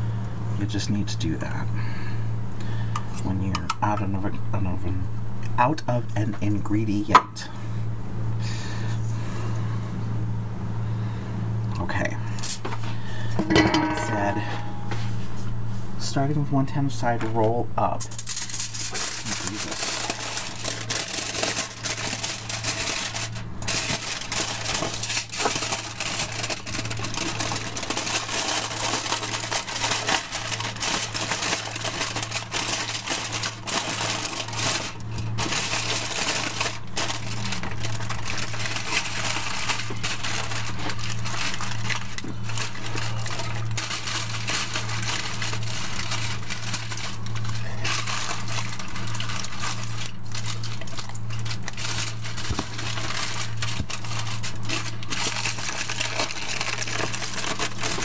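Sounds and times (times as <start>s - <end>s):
low hum: 7.5s - 16.3s
aluminium foil crinkling: 17.9s - 58.0s.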